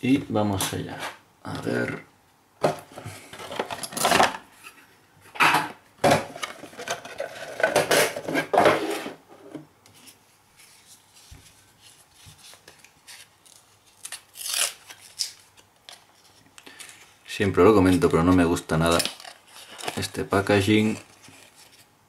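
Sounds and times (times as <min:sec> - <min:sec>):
rustling: 0:09.9 - 0:17.2.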